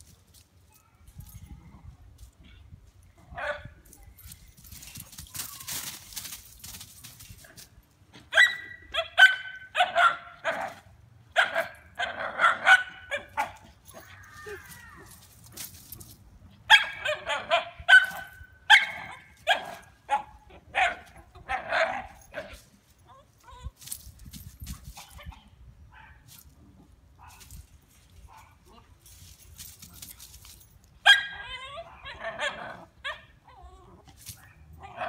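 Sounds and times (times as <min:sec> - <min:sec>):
dog barking in high yaps: 0:08.3 - 0:10.8, 0:11.4 - 0:15.1, 0:16.7 - 0:22.6, 0:31.0 - 0:33.3.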